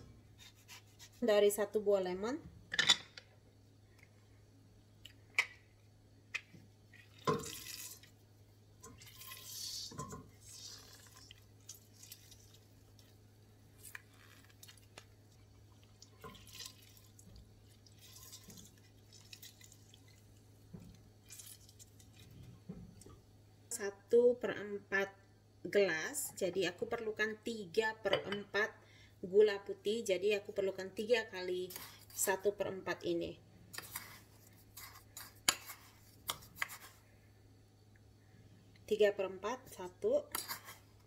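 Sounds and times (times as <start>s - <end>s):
juice squirting and dripping: 7.0s - 8.2s, 8.9s - 13.2s, 13.8s - 22.5s.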